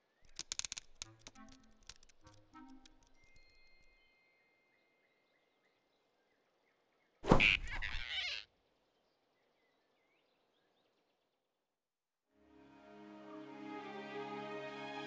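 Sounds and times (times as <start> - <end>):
faint forest ambience: 0.0 - 11.8
cartoon whoosh and impact: 7.2 - 8.1.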